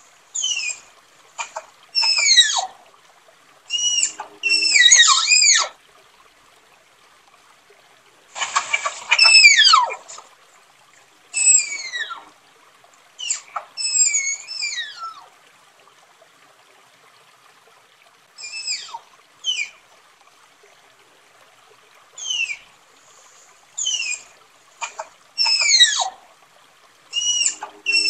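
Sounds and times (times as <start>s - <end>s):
tapir whistling squeals: 3.7s - 5.7s, 9.1s - 10.0s, 11.4s - 12.3s, 13.2s - 15.1s, 23.8s - 24.3s, 25.4s - 26.1s, 27.1s - 28.0s.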